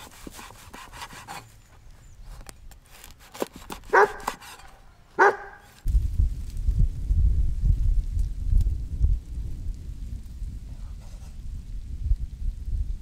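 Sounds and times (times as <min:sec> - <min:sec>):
cleaver cutting bread crust: 0:00.0 - 0:01.5, 0:02.9 - 0:04.8
dog barking: 0:03.9 - 0:04.4, 0:05.2 - 0:05.7
low rumble: 0:05.9 - 0:13.0.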